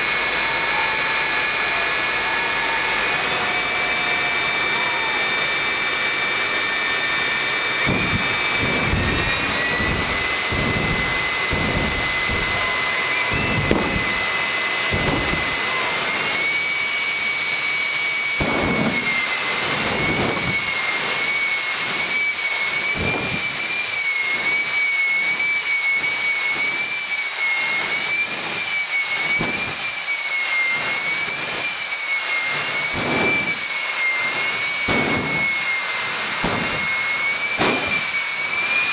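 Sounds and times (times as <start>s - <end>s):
jet engine high whine: 0.0s - 38.9s
low rumbles: 6.4s - 16.6s.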